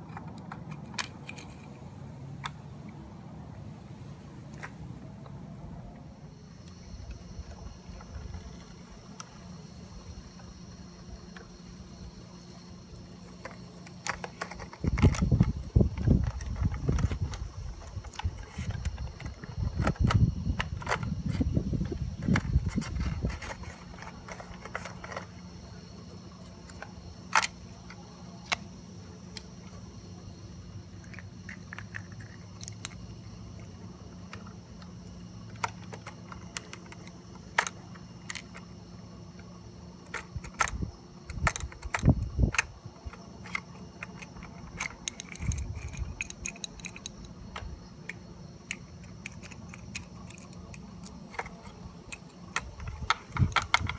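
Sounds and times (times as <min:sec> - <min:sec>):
toy plastic clicks and scrapes: 0:00.0 - 0:01.8, 0:13.3 - 0:25.5, 0:35.5 - 0:38.7, 0:40.0 - 0:53.9.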